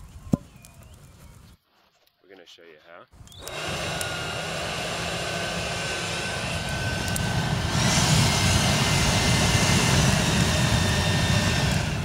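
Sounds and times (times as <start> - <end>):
blower running: 3.3 - 12.0.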